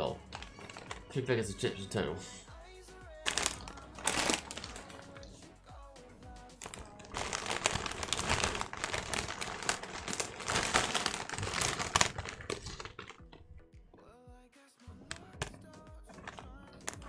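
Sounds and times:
chip packets crinkling: 0.1s - 1.3s, 3.1s - 5.4s, 6.6s - 13.7s, 15.0s - 17.0s.

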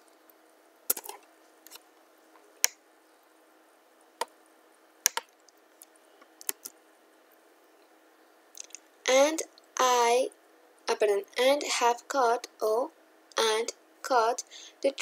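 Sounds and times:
keyboard and mouse clicks: 0.9s - 1.8s, 5.0s - 6.8s, 8.6s - 8.8s.

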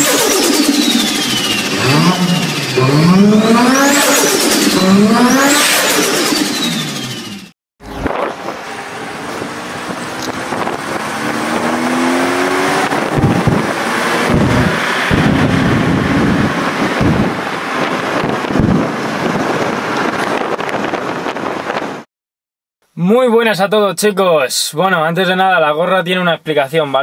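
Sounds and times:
car engine accelerating: 0.0s - 22.1s
wind rushing over microphone: 7.8s - 22.1s.

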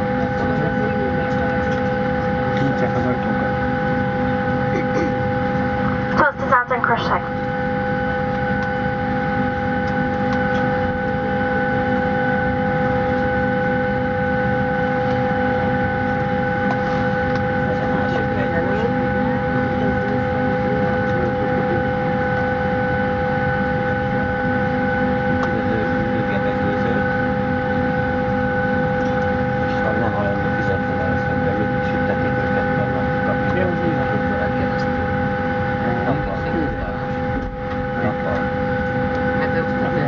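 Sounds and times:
aircraft cabin whine and rumble: 0.0s - 40.0s
faint voices: 0.4s - 1.8s, 17.6s - 22.2s, 29.6s - 35.0s.

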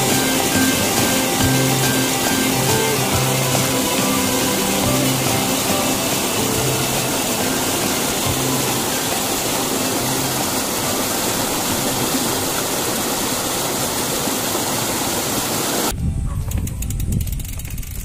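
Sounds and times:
faint music: 0.0s - 12.2s
rocky stream rushing: 0.0s - 15.9s.

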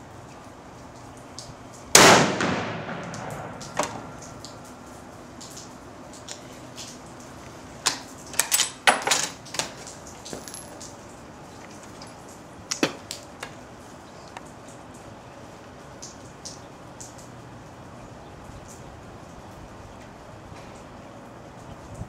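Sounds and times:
sharp metallic clicks and clinks: 7.9s - 10.9s.

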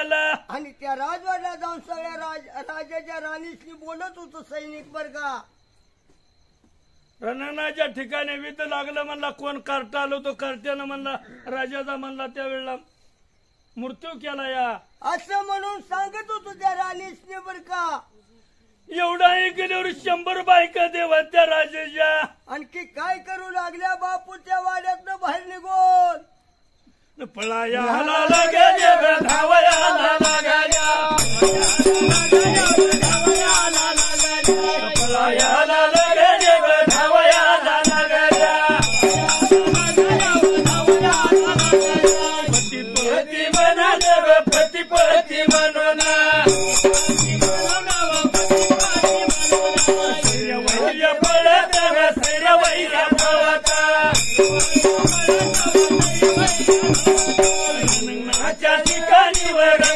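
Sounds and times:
male voices chanting: 0.0s - 0.5s, 27.4s - 59.9s
drum beating a rhythm: 28.3s - 59.9s
hand cymbals jingling: 28.3s - 59.9s.

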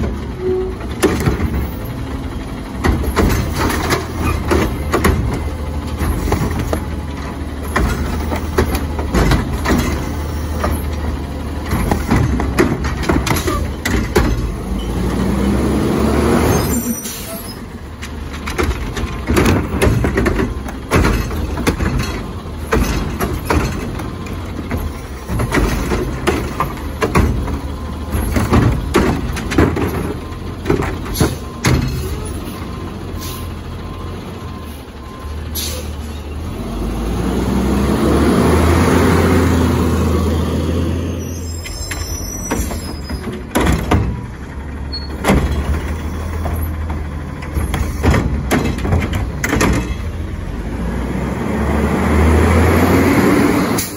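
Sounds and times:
metal clunks and bangs: 0.0s - 15.0s, 17.0s - 35.9s, 41.6s - 50.4s
truck engine revving: 0.0s - 53.9s.

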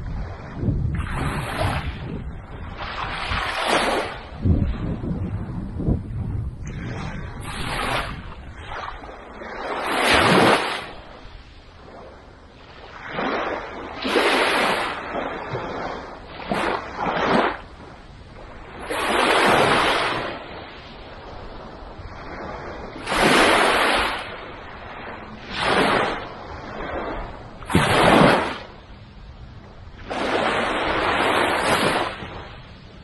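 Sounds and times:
waves breaking on beach: 0.0s - 33.0s.

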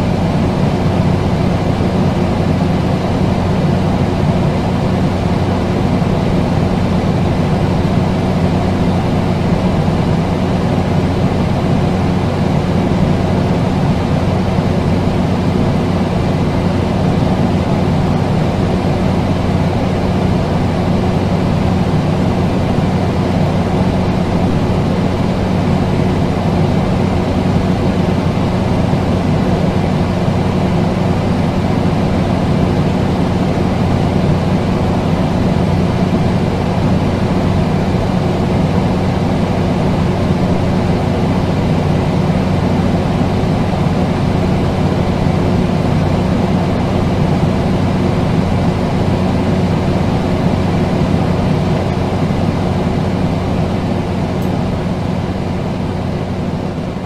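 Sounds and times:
air conditioner humming: 0.0s - 57.0s.

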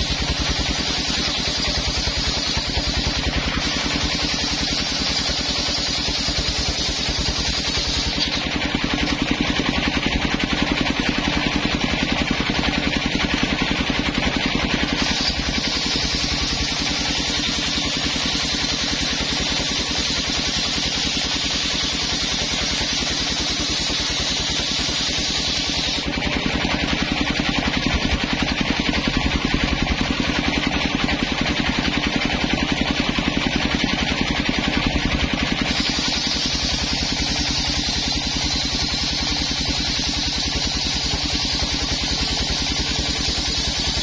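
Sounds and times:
saw blade ripping through wood: 0.0s - 9.2s, 14.8s - 26.1s, 35.6s - 44.0s
circular saw engine running: 0.0s - 44.0s
saw blade spinning with high hiss: 0.0s - 44.0s.

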